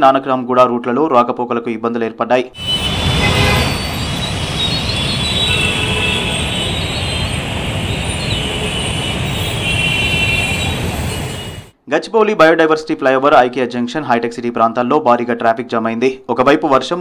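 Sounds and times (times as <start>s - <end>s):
rumble of slow traffic: 2.6s - 11.7s
thin high tones: 2.6s - 11.7s.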